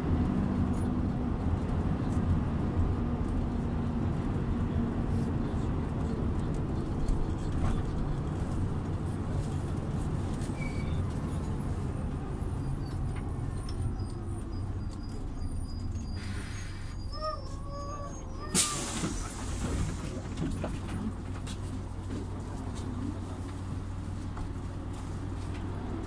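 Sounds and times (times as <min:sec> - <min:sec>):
bus engine humming: 0:00.0 - 0:26.0
compressed air hiss: 0:18.6 - 0:20.0.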